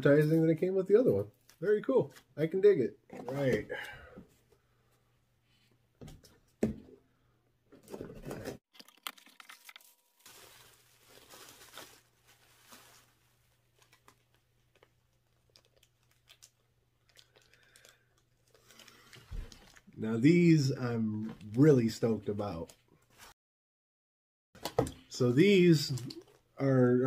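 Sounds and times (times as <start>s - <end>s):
bubble wrap crinkling: 8.7s - 19.9s.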